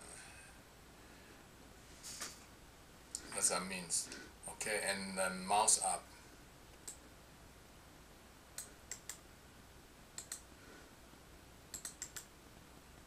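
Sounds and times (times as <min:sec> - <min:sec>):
faint hiss: 0:00.0 - 0:13.0
computer input clicks: 0:11.7 - 0:12.3.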